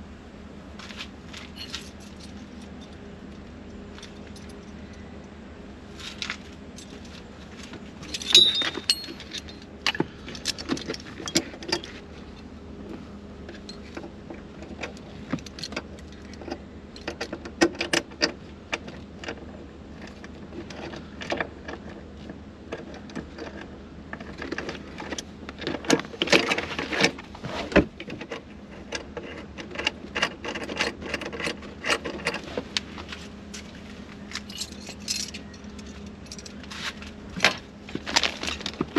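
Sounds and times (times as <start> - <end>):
faint steady hum: 0.0 - 38.9
metal hardware clinking and rattling: 8.0 - 12.0, 34.3 - 36.7.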